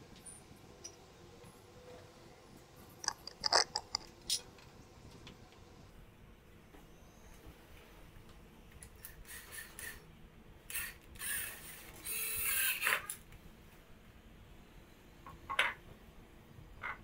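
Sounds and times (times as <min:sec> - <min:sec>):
cordless drill driving a screw: 0:10.7 - 0:13.1.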